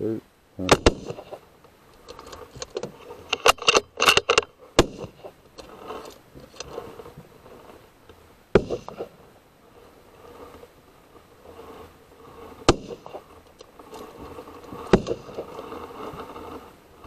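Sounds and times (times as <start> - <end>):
rifle bolt clicks and rattles: 2.0 - 4.5.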